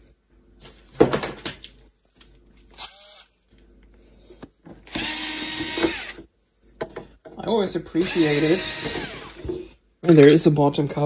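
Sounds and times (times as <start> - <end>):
power screwdriver whirring: 2.8 - 3.3, 4.9 - 6.2, 8.0 - 9.5.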